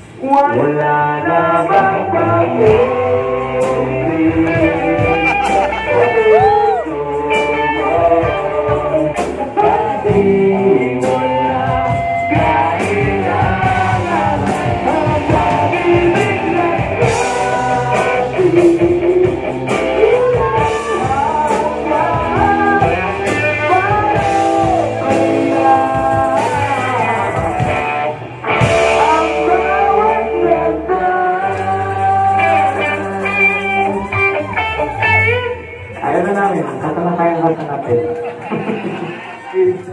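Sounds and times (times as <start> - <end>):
people singing: 0.0 - 35.4
rock band playing: 1.7 - 39.9.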